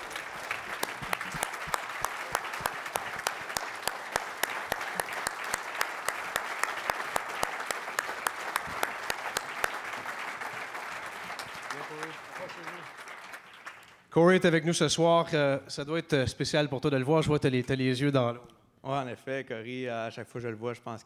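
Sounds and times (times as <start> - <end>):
audience applauding: 0.0 - 14.1.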